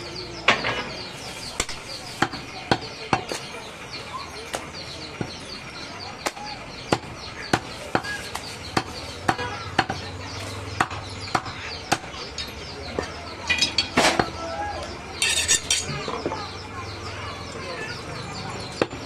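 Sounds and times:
cleaver chopping meat on wood: 0:01.6 - 0:03.4, 0:06.2 - 0:10.0, 0:10.8 - 0:12.1.

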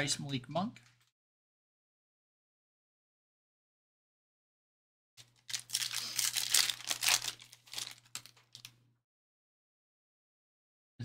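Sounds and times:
foil wrapper tearing and crinkling: 0:05.2 - 0:08.7.

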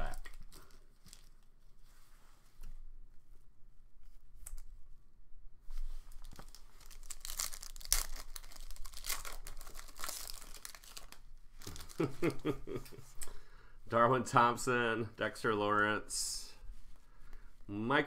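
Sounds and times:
foil wrapper tearing and crinkling: 0:06.2 - 0:12.1.

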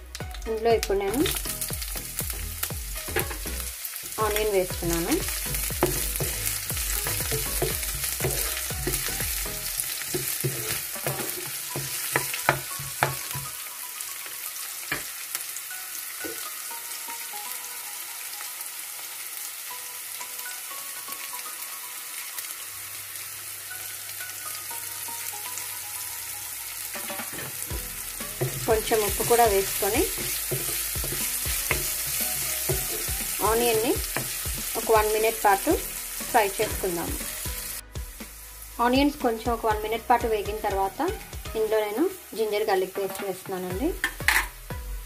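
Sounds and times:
onions sizzling in oil: 0:00.0 - 0:45.0
spatula scraping pan: 0:07.0 - 0:13.2.

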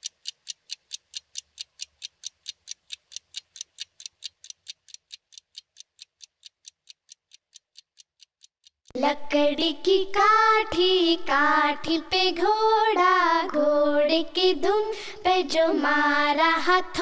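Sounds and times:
pendulum clock ticking: 0:00.0 - 0:09.0.

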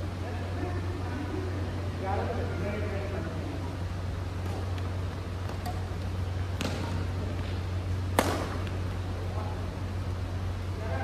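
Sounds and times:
steady low hum: 0:00.0 - 0:11.0
racquets hitting shuttlecock: 0:04.4 - 0:09.0.

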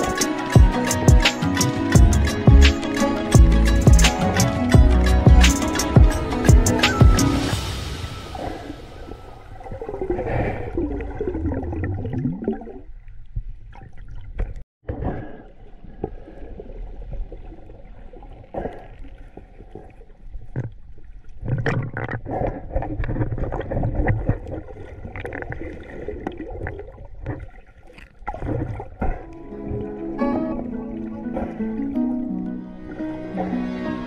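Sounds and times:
water surging and gurgling underwater: 0:00.0 - 0:34.0.

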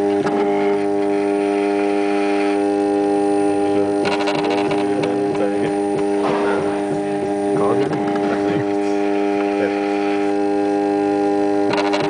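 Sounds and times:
steady machine hum: 0:00.0 - 0:12.0
rapid clicking: 0:04.0 - 0:06.2, 0:11.6 - 0:12.0.

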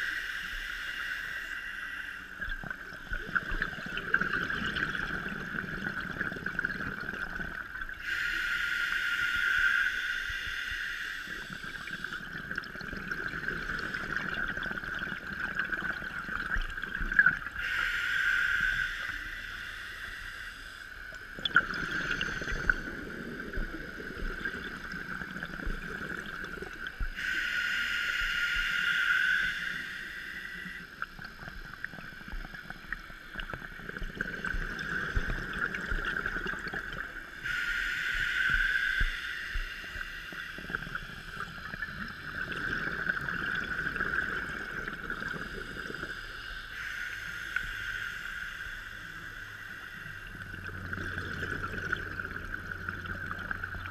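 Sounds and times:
diver inhaling through regulator: 0:00.0 - 0:02.5, 0:08.0 - 0:12.4, 0:17.6 - 0:31.5, 0:34.1 - 0:52.4
steady high whine: 0:00.0 - 0:53.9.

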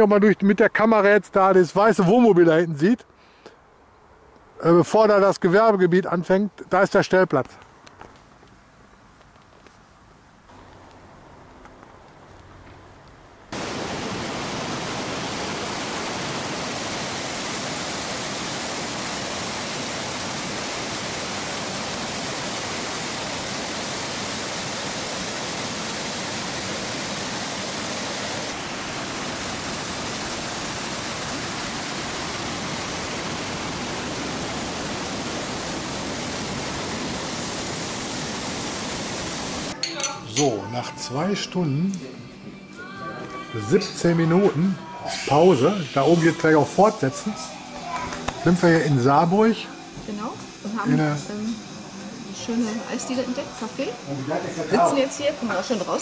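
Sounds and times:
waterfall rushing: 0:13.5 - 0:39.8, 0:45.1 - 0:56.0.

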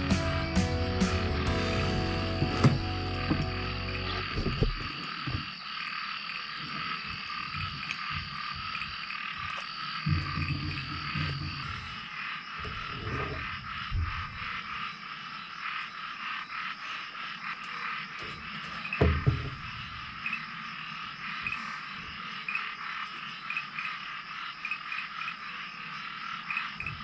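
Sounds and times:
frog chorus: 0:01.4 - 0:27.0
low thump: 0:02.4 - 0:03.6, 0:04.2 - 0:05.4, 0:19.0 - 0:19.8.

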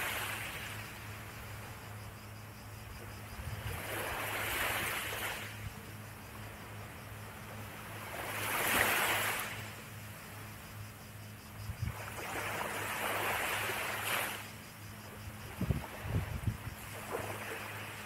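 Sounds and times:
small waves washing onto shore: 0:00.0 - 0:01.3, 0:03.6 - 0:05.7, 0:06.4 - 0:10.5, 0:11.8 - 0:14.5, 0:15.3 - 0:18.0.

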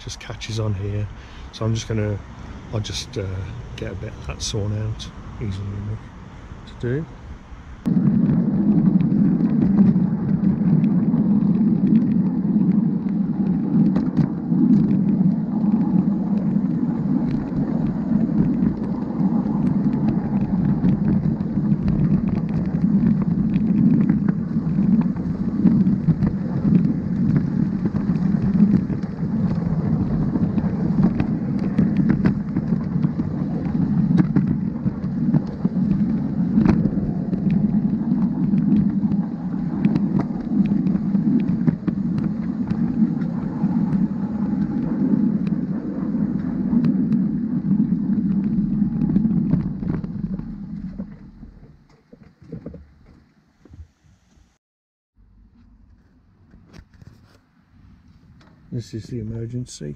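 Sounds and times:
steel wheels rolling on rails: 0:08.0 - 0:51.5.

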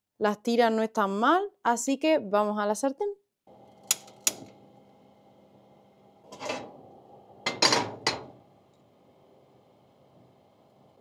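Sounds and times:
steady hum: 0:03.5 - 0:11.0
kitchen utensils clattering: 0:06.3 - 0:06.7, 0:07.5 - 0:08.3.

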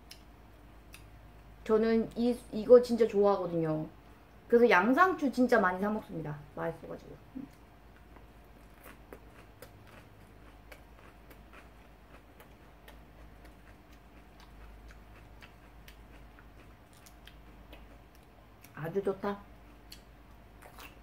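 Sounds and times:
low steady hum: 0:00.0 - 0:21.0
lettuce crunching while chewed: 0:07.5 - 0:18.8, 0:19.7 - 0:21.0.

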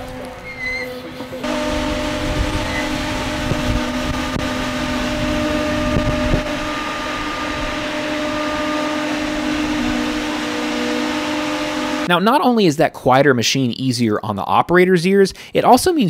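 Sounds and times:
electric motor whine and hum: 0:01.4 - 0:12.1
low thumps: 0:01.5 - 0:12.1.

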